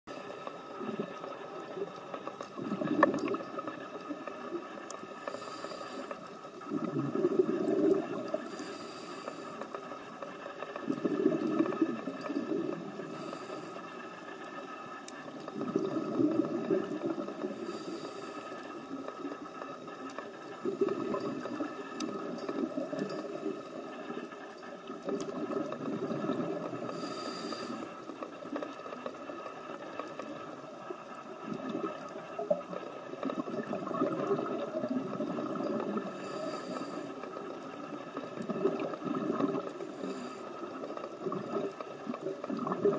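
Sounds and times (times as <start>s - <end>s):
exhaled bubbles underwater: 0.2s - 8.6s, 10.5s - 13.7s, 15.2s - 18.2s, 18.8s - 42.9s
regulator inhalation hiss: 5.1s - 6.3s, 8.3s - 9.7s, 12.9s - 14.0s, 17.4s - 18.8s, 26.8s - 28.1s, 36.1s - 37.4s, 39.8s - 40.7s.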